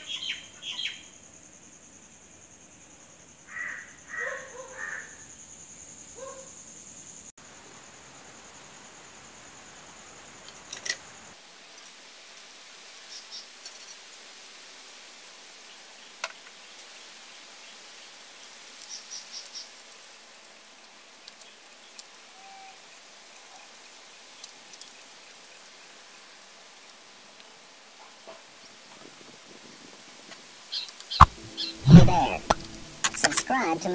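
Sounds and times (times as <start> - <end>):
background hiss: 0.0 - 33.9.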